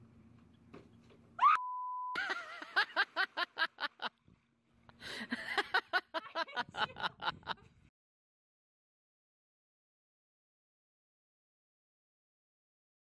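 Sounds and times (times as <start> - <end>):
beep tone: 1.6 - 2.2
rhythmic laughter: 5.2 - 7.7.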